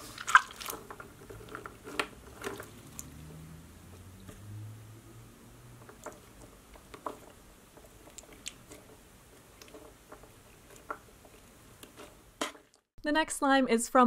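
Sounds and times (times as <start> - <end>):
slime squishing with wet clicks: 0.2 - 3.2, 5.8 - 12.0.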